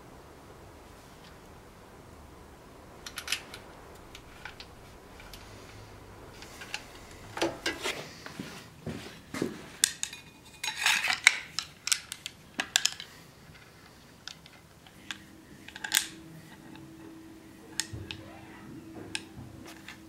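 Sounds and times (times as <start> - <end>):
faint steady hum: 0.0 - 20.0
knife and metal fittings clinking: 9.9 - 12.2.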